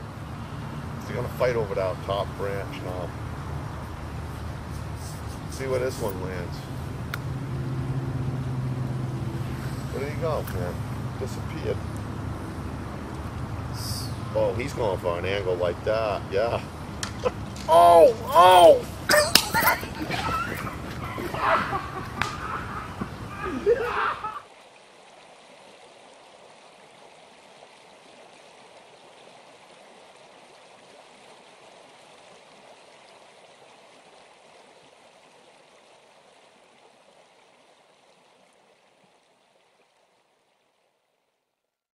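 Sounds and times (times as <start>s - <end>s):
lakeside water hiss: 0.0s - 41.7s
loud voices: 16.4s - 24.4s.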